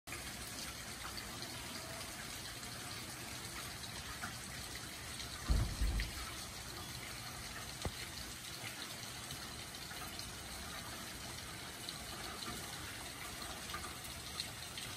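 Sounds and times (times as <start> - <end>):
steady rain falling: 0.1 - 14.9
low thump: 5.4 - 6.3.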